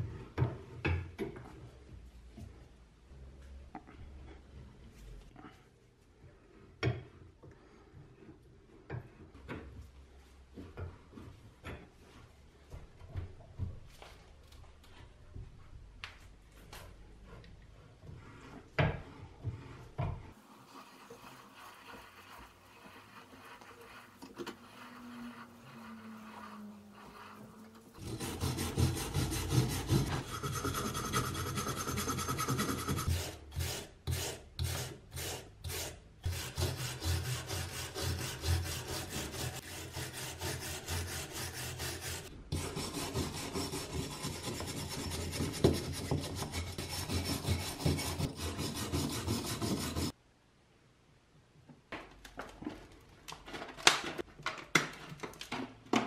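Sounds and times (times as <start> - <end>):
wire brush scrubbing metal: 20.4 - 50.1.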